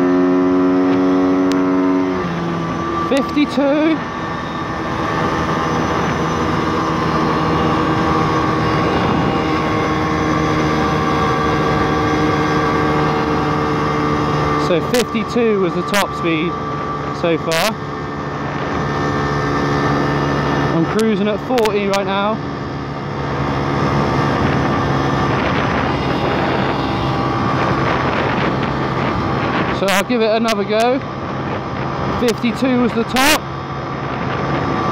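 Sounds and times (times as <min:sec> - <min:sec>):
motorbike engine at full throttle: 0:00.0 - 0:34.9
wind rushing over microphone: 0:00.0 - 0:34.9.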